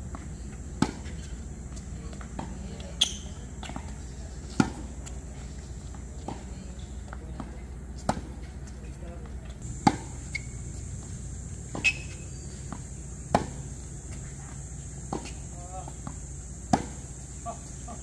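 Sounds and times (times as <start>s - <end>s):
tennis ball bouncing: 0.1s - 8.6s, 9.4s - 18.0s
racket hitting tennis ball: 0.7s - 5.2s, 7.4s - 8.6s, 9.6s - 18.0s.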